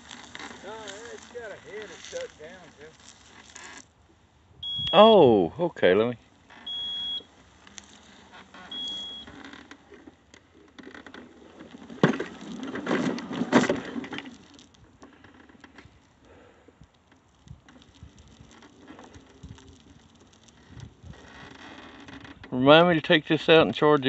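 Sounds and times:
rustling crackling noise: 0.0s - 5.3s, 5.9s - 24.0s
short high electronic beep: 4.6s - 5.2s, 8.7s - 9.3s.

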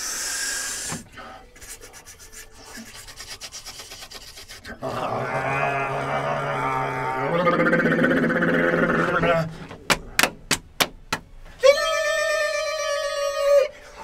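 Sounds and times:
man sniffing: 0.0s - 4.8s
man humming mmm: 2.6s - 9.7s.

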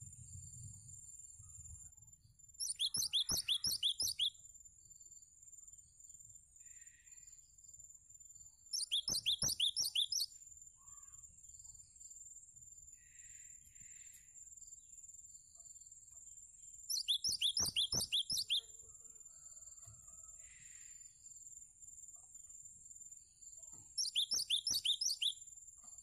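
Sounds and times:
bird singing falling notes: 2.6s - 4.3s, 8.8s - 10.3s, 16.9s - 18.6s, 24.0s - 25.4s.

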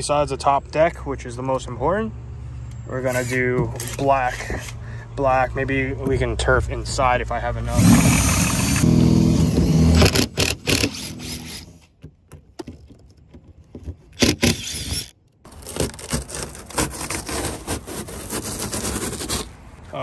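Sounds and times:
motor running: 7.8s - 11.6s
carpet being torn up: 15.5s - 19.5s.

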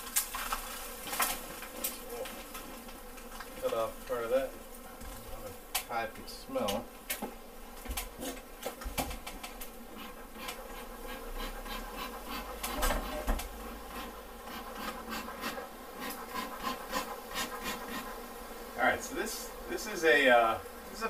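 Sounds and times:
crackles and rustles: 0.0s - 11.2s
bees buzzing: 0.0s - 21.0s.

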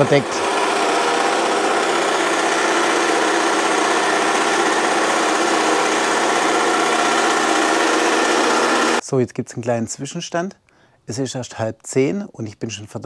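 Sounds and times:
lawn mower running: 0.0s - 9.0s.

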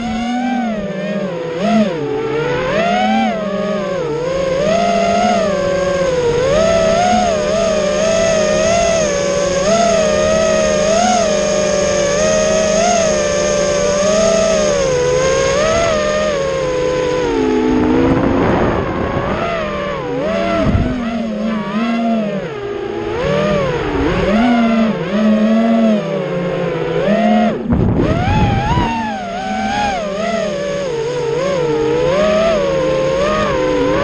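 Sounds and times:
drone motors whining: 0.0s - 34.0s
propeller air rushing: 3.8s - 34.0s.

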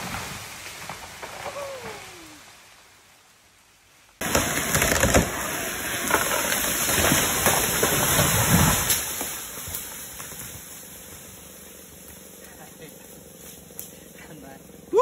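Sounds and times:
rushing foliage: 0.0s - 15.0s
branches snapping: 4.2s - 14.8s.

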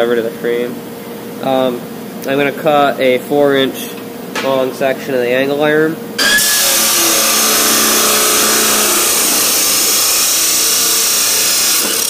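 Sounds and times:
chop saw grinding through steel: 6.2s - 12.0s.

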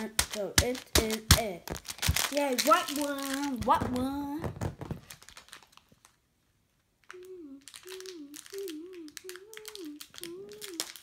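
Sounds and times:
plastic bag crinkling: 0.0s - 6.2s, 7.6s - 11.0s
child humming: 7.1s - 11.0s.

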